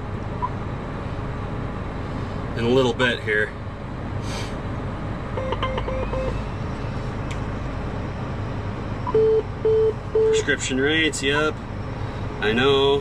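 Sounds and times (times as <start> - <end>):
tractor engine running: 3.6 - 13.0
loud alert beep: 5.4 - 6.6
quick electronic beeps: 5.4 - 6.6.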